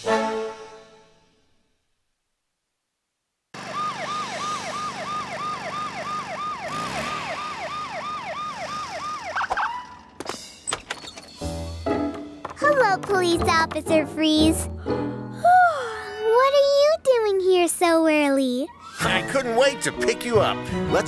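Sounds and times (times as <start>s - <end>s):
cartoon police siren wailing: 3.6s - 10.1s.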